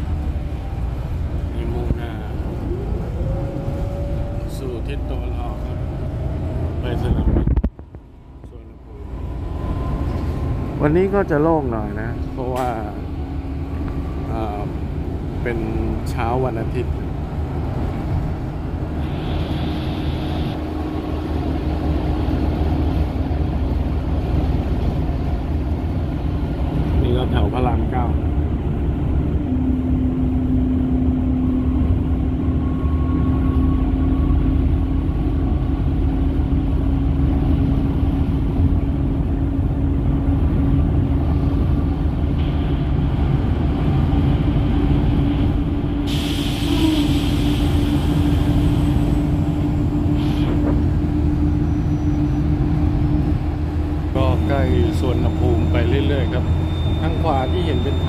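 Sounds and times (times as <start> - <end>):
bus engine and road rumble: 0.0 - 58.0
brief high hiss: 46.1 - 47.9.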